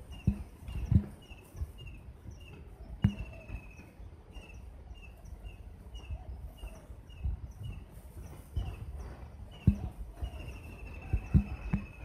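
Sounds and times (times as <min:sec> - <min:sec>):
songbird call notes: 0:00.0 - 0:12.0.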